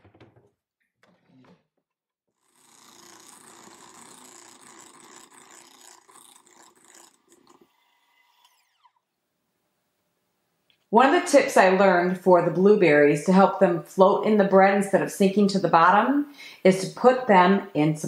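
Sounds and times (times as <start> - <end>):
electric hand mixer whine: 2.4 - 9.2.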